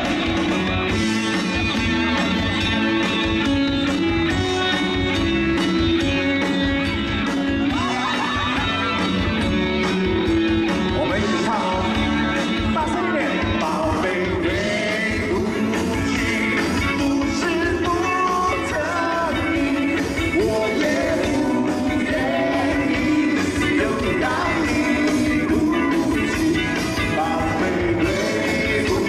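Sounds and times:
live rock band playing: 0.0s - 29.0s
lead singer singing: 13.2s - 29.0s.

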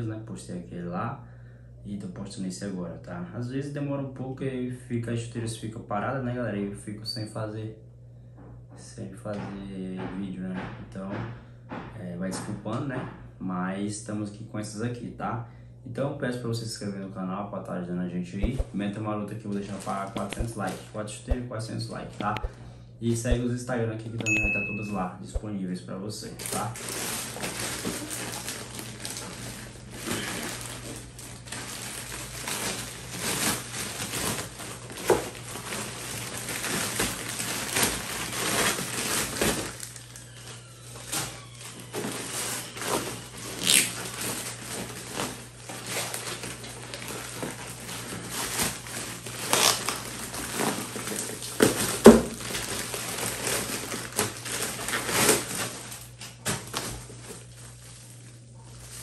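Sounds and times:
steady low hum: 0.0s - 40.2s
plastic bags crinkling: 19.4s - 22.6s, 26.2s - 59.0s.

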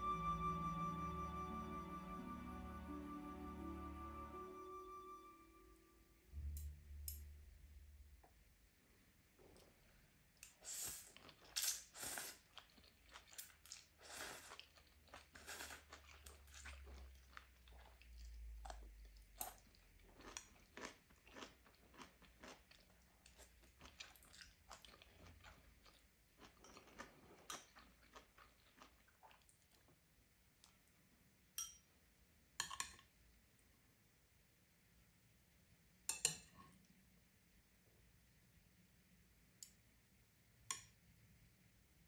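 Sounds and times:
crunching and chewing food: 11.0s - 30.0s.

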